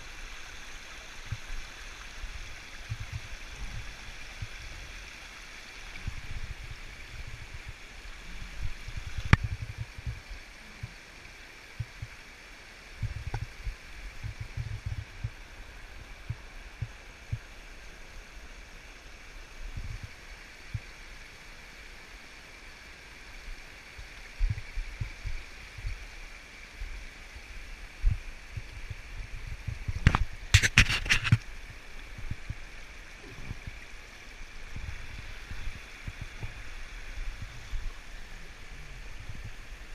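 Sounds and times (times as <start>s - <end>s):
water rushing through metal grates: 28.2s - 39.9s.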